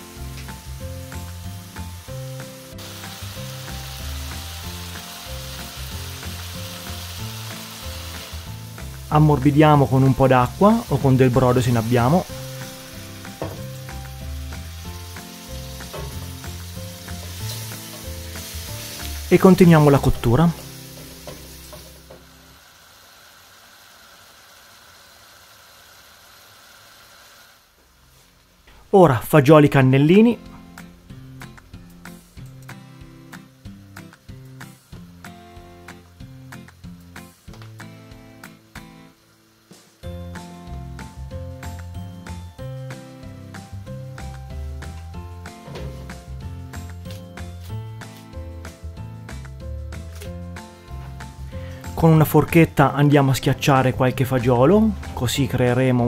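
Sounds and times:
background music: 0:00.0 - 0:22.6, 0:29.0 - 0:56.0
food sizzling in frying pan: 0:00.0 - 0:28.6, 0:30.5 - 0:56.0
food simmering in a pan: 0:20.6 - 0:28.6, 0:32.4 - 0:44.9.

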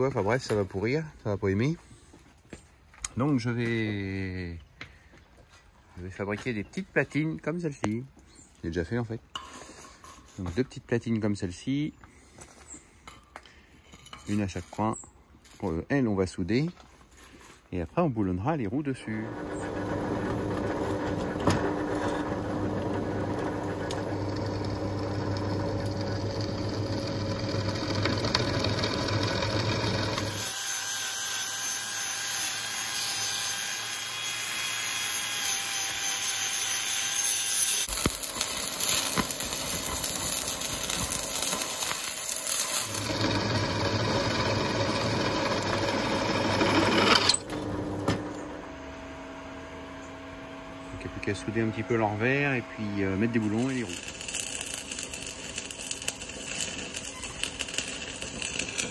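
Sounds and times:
angle grinder on metal plate: 0:19.0 - 0:48.6, 0:51.5 - 0:58.9
drill press boring through steel: 0:19.1 - 0:48.1, 0:53.3 - 0:58.9.

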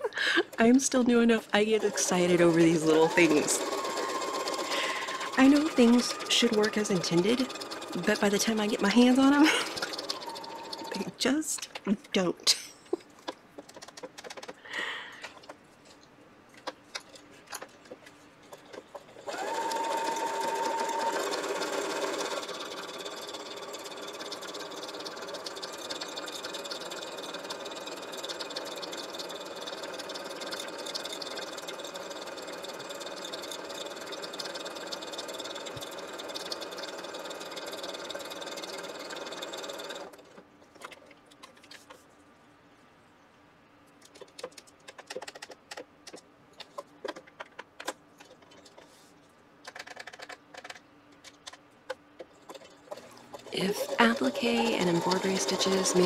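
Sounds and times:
sewing machine stitching: 0:01.6 - 0:12.2, 0:18.5 - 0:41.8, 0:52.2 - 0:56.0.

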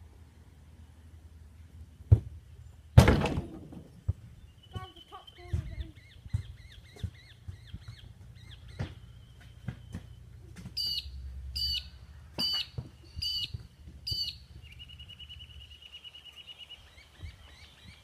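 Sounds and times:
sharp thumps: 0:03.0 - 0:04.9
fast high bird trill: 0:10.8 - 0:17.8
sharp high bird calls: 0:10.8 - 0:18.0.

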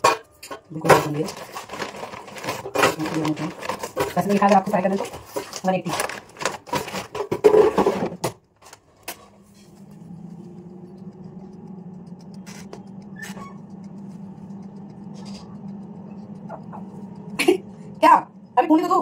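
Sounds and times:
air fryer fan humming: 0:00.0 - 0:19.0
frozen snacks rattling: 0:00.9 - 0:08.2
click: 0:09.9 - 0:17.4.

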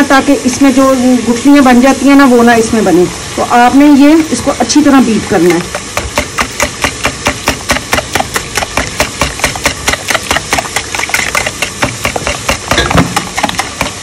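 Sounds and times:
whisk beating batter in bowl: 0:05.4 - 0:14.0.

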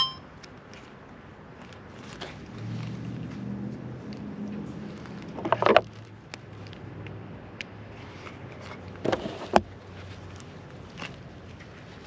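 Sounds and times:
gear handling clicks and rustles: 0:04.0 - 0:12.0.

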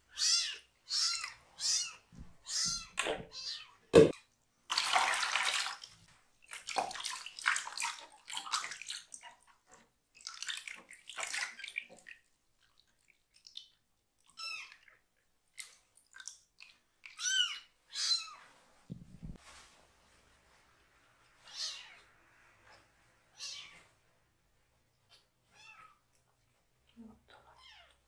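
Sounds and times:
water splashing in plastic tub: 0:02.8 - 0:13.8.

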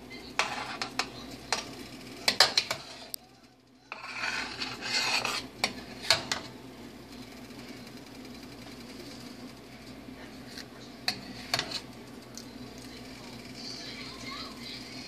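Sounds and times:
spoon scraping metal pan: 0:00.3 - 0:03.2, 0:03.9 - 0:06.5, 0:10.5 - 0:11.9.

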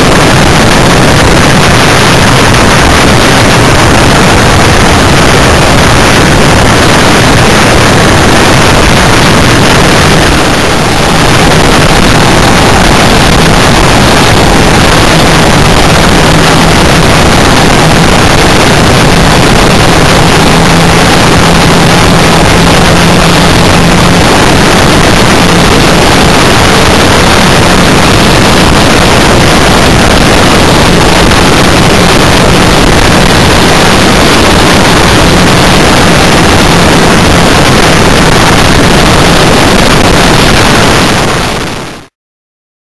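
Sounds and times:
engine hum: 0:00.0 - 0:41.8
wind and road noise: 0:00.0 - 0:42.2.

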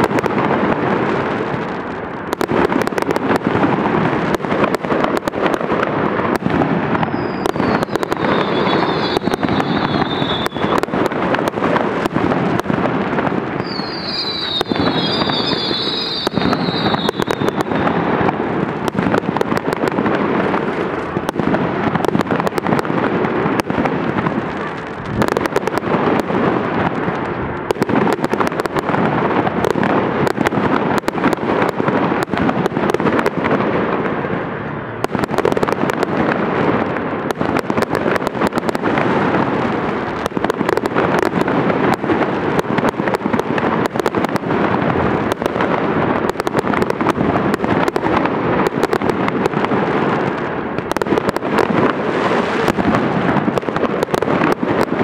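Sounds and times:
fireworks crackling: 0:00.0 - 0:55.0
fireworks rumble: 0:00.0 - 0:55.0
high wavering whistle: 0:07.1 - 0:10.6, 0:13.6 - 0:17.6.

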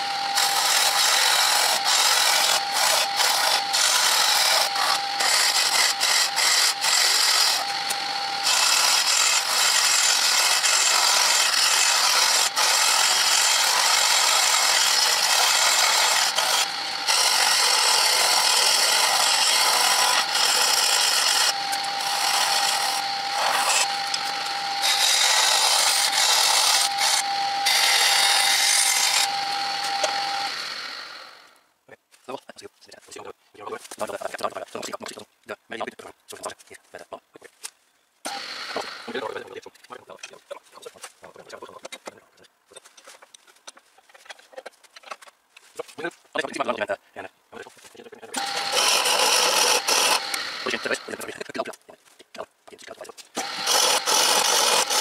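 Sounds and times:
chisel scraping spinning wood: 0:00.0 - 0:31.3, 0:48.4 - 0:51.4, 0:53.4 - 0:55.0
lathe motor whine: 0:00.0 - 0:31.6, 0:38.3 - 0:39.2, 0:48.4 - 0:51.3, 0:53.4 - 0:55.0.

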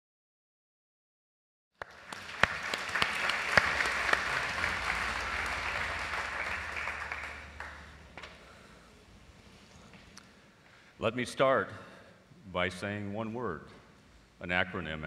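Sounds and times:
large audience applauding: 0:01.8 - 0:08.6.

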